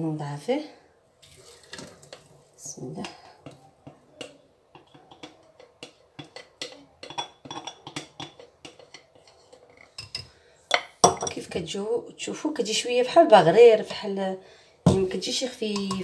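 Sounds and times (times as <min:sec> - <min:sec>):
whisk tapping against glass jar: 0:03.0 - 0:11.2, 0:15.8 - 0:16.0.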